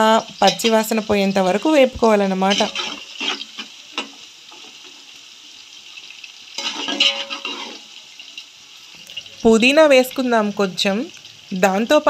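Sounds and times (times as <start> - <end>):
onions sizzling in hot oil: 0.0 - 12.0
metal spatula scraping pot: 0.4 - 1.0, 2.4 - 5.0, 6.6 - 8.0.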